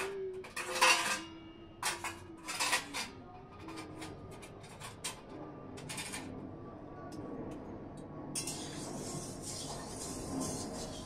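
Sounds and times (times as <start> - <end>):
metal spatula scraping a steel pan: 0.0 - 3.1, 8.4 - 11.0.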